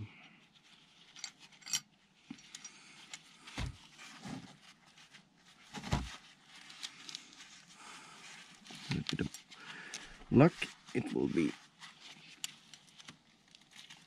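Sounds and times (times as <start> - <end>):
metal pipes clinking and jangling: 1.0 - 3.3.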